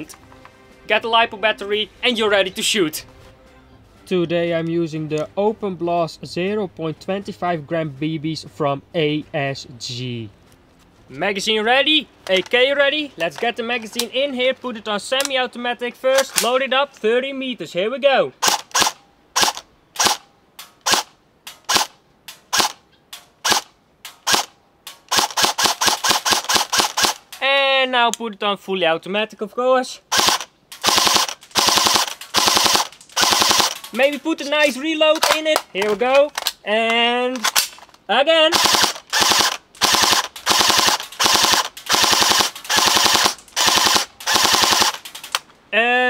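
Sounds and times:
airsoft rifle shots: 18.4 - 20.2, 20.8 - 22.8, 23.4 - 27.2, 30.1 - 34.2, 38.5 - 45.4.

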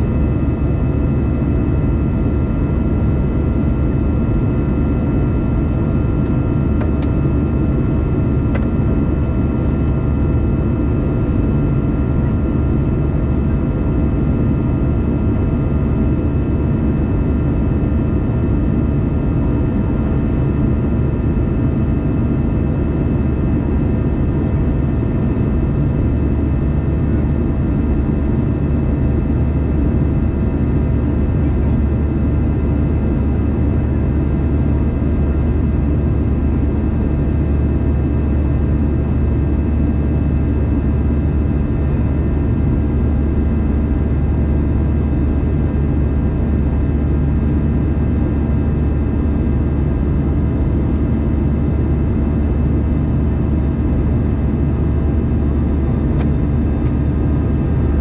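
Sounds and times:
jet engine rumble in cabin: 0.0 - 58.0.

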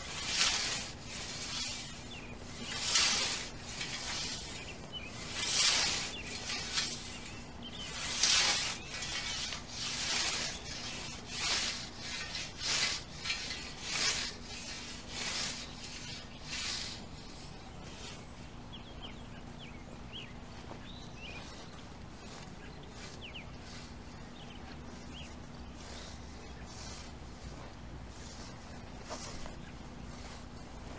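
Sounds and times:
scythe swishing through grass: 0.0 - 18.3, 21.2 - 30.9.

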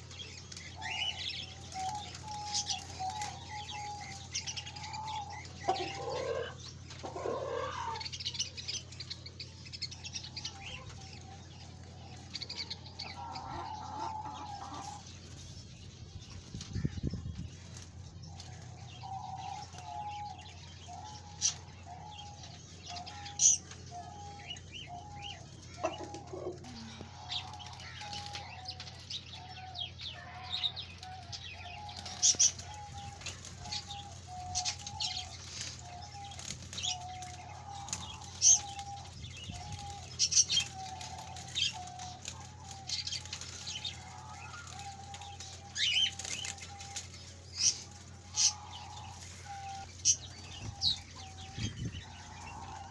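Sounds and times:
cage birds chirping: 0.0 - 52.9
steady low hum: 0.0 - 52.9
chicken clucking: 5.1 - 8.0, 13.1 - 15.0, 25.6 - 28.4.

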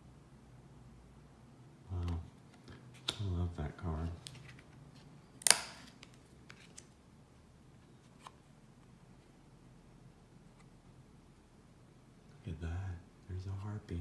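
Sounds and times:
card snapping down: 5.4 - 6.8.

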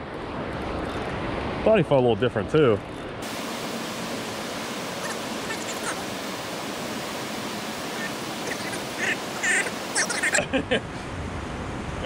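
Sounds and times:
churning river water rushing: 3.2 - 12.0.

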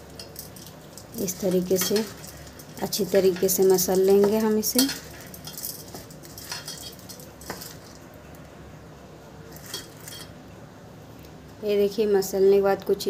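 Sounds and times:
rice scraping in steel bowl: 0.2 - 8.0.

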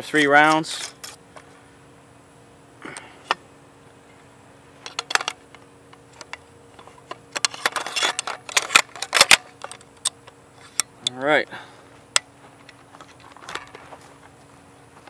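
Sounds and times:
rifle parts clicking and rattling: 4.8 - 11.2, 12.1 - 14.1.

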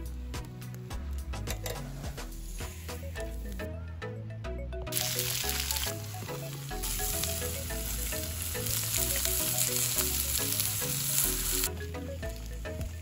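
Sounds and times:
background music with bass line: 0.0 - 13.0
food sizzling in a pan: 2.0 - 3.6, 4.9 - 13.0.

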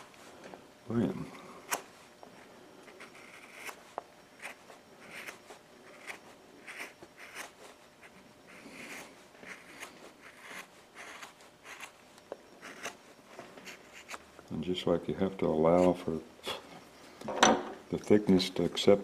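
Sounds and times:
carving tool scraping wood: 2.9 - 3.8, 4.4 - 12.0, 12.6 - 13.0, 13.6 - 14.2.

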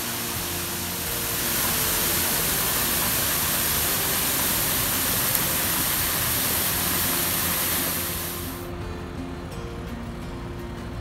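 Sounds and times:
waterfall rushing: 0.0 - 8.7.

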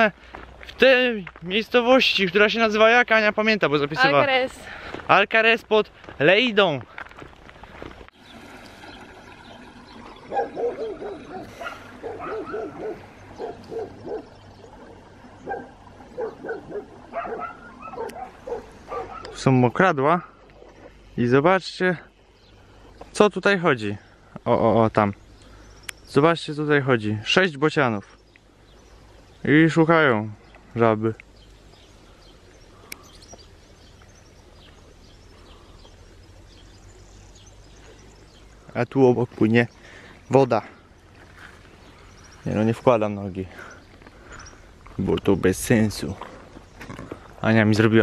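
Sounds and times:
small birds chirping: 0.0 - 48.0
dog barking and yipping: 10.3 - 14.3, 15.4 - 19.5.

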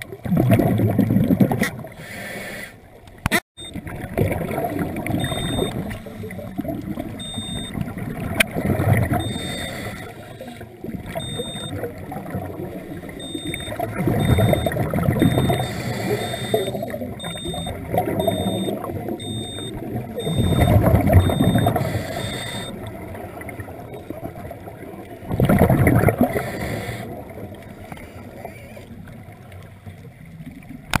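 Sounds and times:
underwater bubbling exhalations: 0.1 - 2.0, 3.6 - 29.3
faint high beep: 3.6 - 3.8, 5.2 - 5.8, 7.2 - 7.7, 9.2 - 10.5, 11.2 - 11.8, 13.2 - 22.8.

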